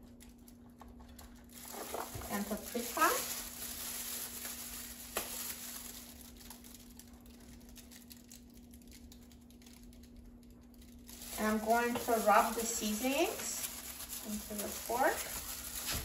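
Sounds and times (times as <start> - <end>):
faint steady hum: 0.0 - 16.0
plastic gloves rustling: 0.0 - 16.0
shaker jars shaken: 1.5 - 6.2, 11.1 - 16.0.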